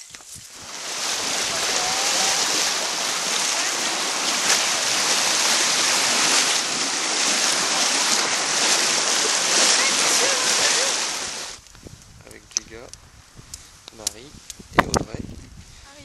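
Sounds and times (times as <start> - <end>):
horse splashing through water: 0.5 - 11.6.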